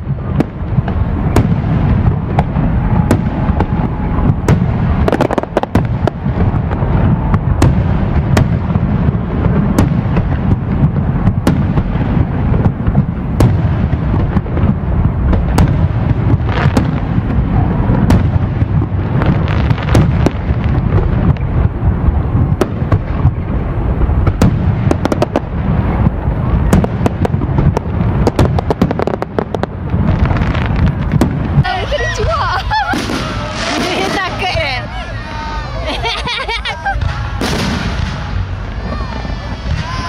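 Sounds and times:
firework shells booming: 0:00.0 - 0:34.9, 0:36.0 - 0:40.0
sharp firework bangs: 0:00.0 - 0:34.9, 0:36.9 - 0:40.0.

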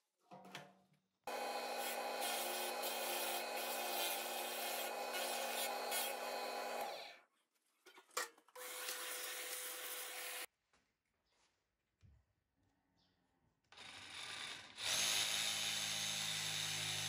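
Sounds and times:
drill press cutting wood: 0:01.3 - 0:07.1.

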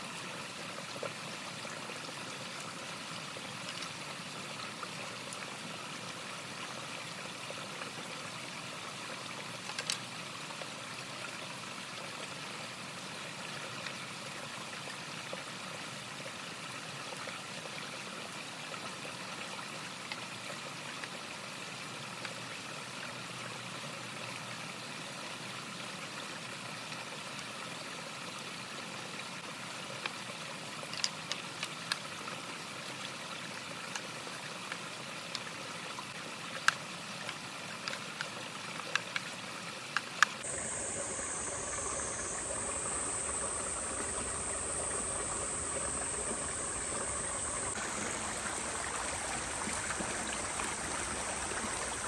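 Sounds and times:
steady rushing water-like noise: 0:00.0 - 0:52.0
faint clicks: 0:09.6 - 0:10.1.

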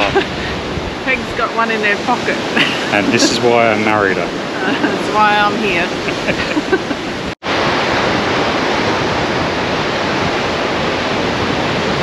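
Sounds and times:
person laughing: 0:00.0 - 0:00.5, 0:02.6 - 0:05.0, 0:05.9 - 0:07.3
small waves washing onto beach: 0:00.0 - 0:12.0.

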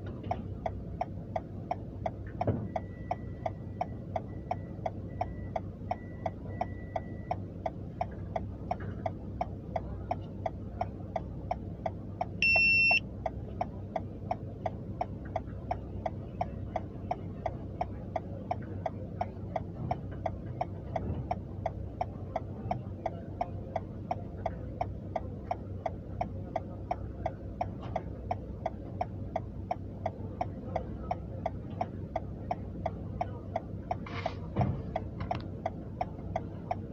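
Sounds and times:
car indicator clicking: 0:00.0 - 0:36.9
idling engine hum: 0:00.0 - 0:36.9
loud high beep: 0:12.4 - 0:13.0.

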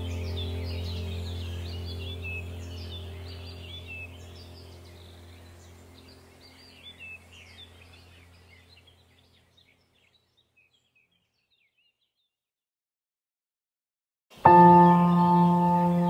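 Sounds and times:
low steady hum: 0:00.0 - 0:10.4, 0:14.4 - 0:16.0
birds chirping: 0:00.0 - 0:12.3, 0:14.4 - 0:16.0.

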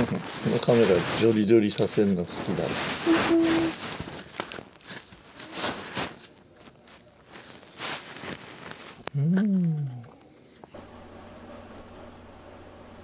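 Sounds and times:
fur rubbing against microphone: 0:00.0 - 0:06.4, 0:07.2 - 0:09.0.

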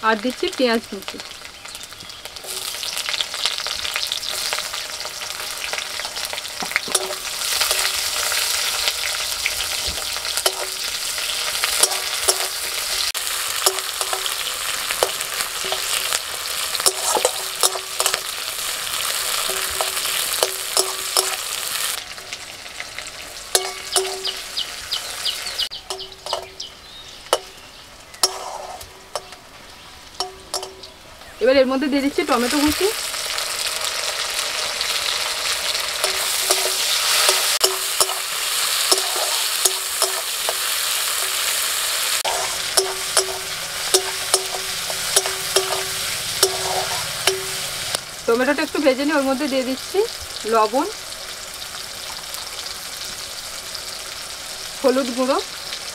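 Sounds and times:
onion and garlic sizzling in oil: 0:00.0 - 0:55.9
spatula scraping and tapping pan: 0:06.0 - 0:08.6, 0:09.7 - 0:10.9, 0:11.6 - 0:18.4, 0:19.4 - 0:21.5, 0:23.6 - 0:24.4, 0:25.9 - 0:26.6, 0:27.3 - 0:27.6, 0:28.2 - 0:29.4, 0:30.2 - 0:30.9, 0:36.0 - 0:41.5, 0:42.2 - 0:47.9.

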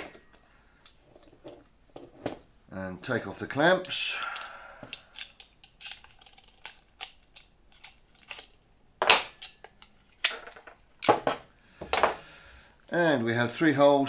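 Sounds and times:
metal clamps scraping and clanking: 0:03.8 - 0:08.6.

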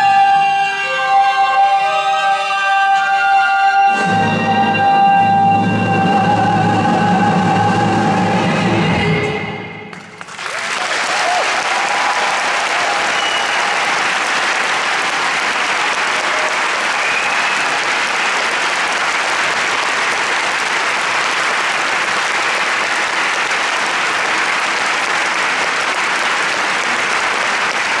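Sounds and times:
audience applauding: 0:09.9 - 0:28.0.

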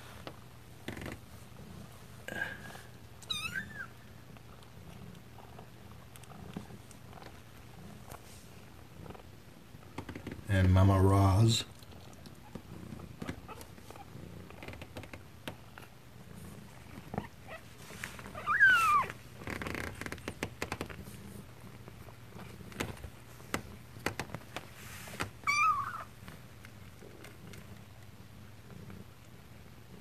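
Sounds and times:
soft clicks and rustling: 0:04.3 - 0:10.4, 0:19.0 - 0:25.5, 0:26.2 - 0:29.4
kittens mewing: 0:18.3 - 0:19.2, 0:25.4 - 0:26.1.

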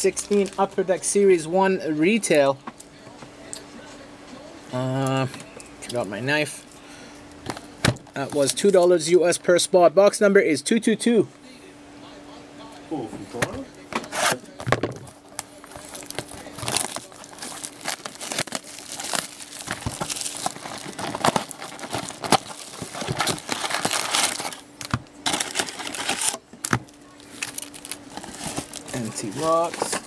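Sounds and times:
plastic wrap crinkling: 0:00.0 - 0:00.8, 0:15.0 - 0:30.0
foil card packs rustling: 0:00.0 - 0:02.2, 0:07.4 - 0:09.0, 0:14.1 - 0:30.0.

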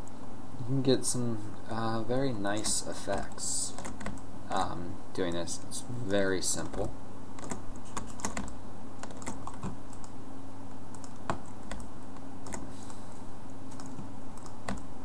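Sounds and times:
steady low hum: 0:00.0 - 0:15.0
keyboard keys clicking: 0:07.4 - 0:10.1, 0:10.9 - 0:12.7, 0:13.7 - 0:14.8.

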